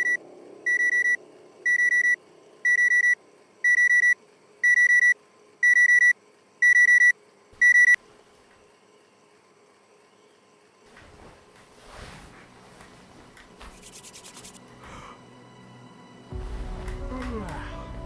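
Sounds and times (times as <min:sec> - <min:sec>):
phone alarm beeping: 0:00.0 - 0:08.0.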